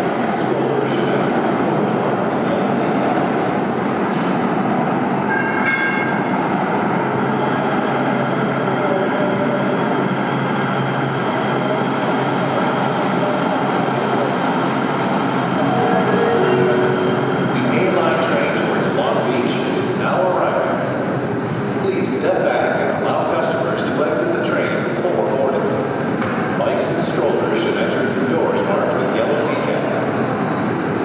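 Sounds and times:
train rumbling: 9.8s - 21.5s.

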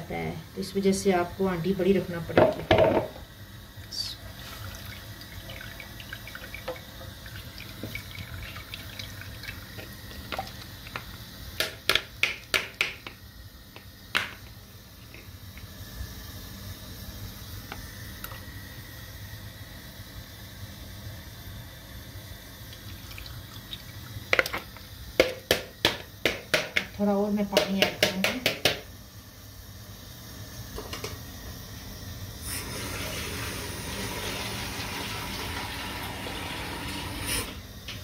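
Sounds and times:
liquid trickling through a sieve: 4.3s - 11.0s, 22.7s - 24.7s.

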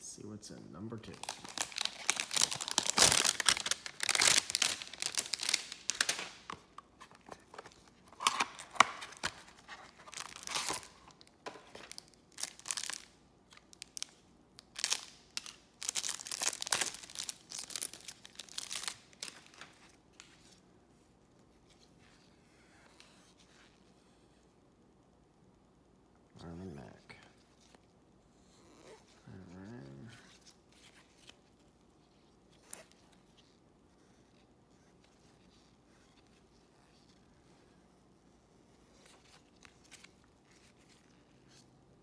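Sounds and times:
plastic wrapper tearing and crinkling: 1.0s - 6.7s, 7.5s - 19.9s.

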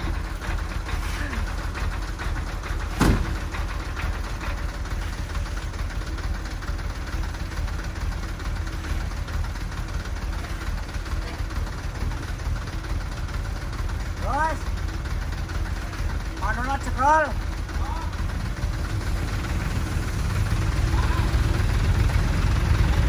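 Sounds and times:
diesel truck engine rumbling: 0.0s - 23.0s
sharp loud thump: 2.9s - 3.4s.

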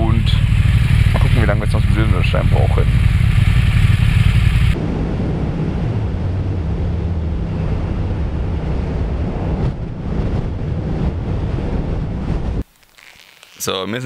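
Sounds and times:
motorcycle engine drone: 0.0s - 12.6s
wind rushing: 2.8s - 12.6s.

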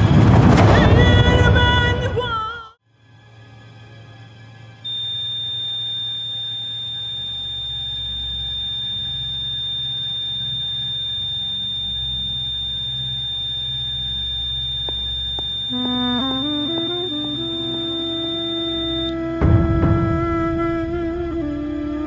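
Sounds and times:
heart monitor flatline tone: 4.9s - 19.2s.

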